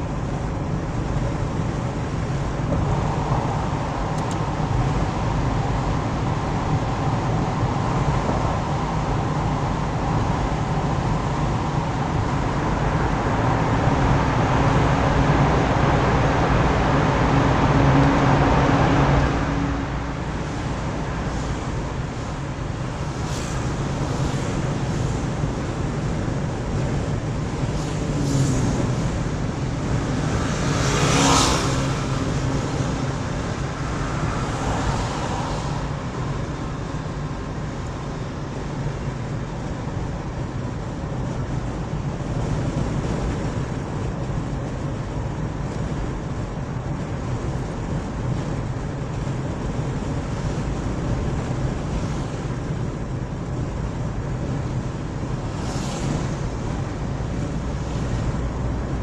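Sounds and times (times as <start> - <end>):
car road and engine noise: 0.0 - 59.0
vehicle passing close by: 9.8 - 26.1, 27.6 - 38.5, 54.7 - 59.0.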